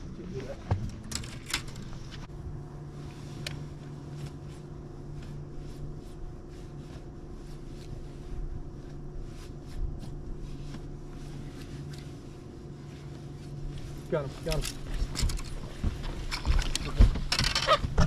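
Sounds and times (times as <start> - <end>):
trolling motor electric hum: 0.0 - 18.0
feet on boat deck: 13.0 - 18.0.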